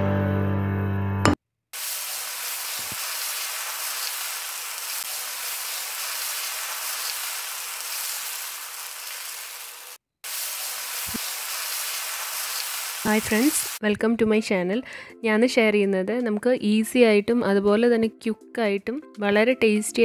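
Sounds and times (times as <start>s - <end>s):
batter sizzling on a pan: 1.8s - 13.8s.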